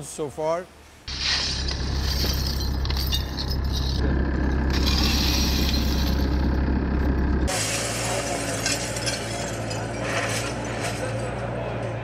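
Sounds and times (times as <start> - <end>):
shovels scraping broken glass: 1.1 - 4.0, 4.7 - 6.4, 7.5 - 11.4
glass shards clinking: 1.1 - 6.5, 7.5 - 11.4
loader engine humming: 1.1 - 12.0.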